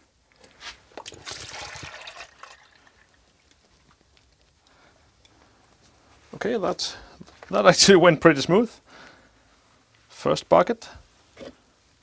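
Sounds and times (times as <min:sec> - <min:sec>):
oil pouring into bucket: 0:01.0 - 0:03.6.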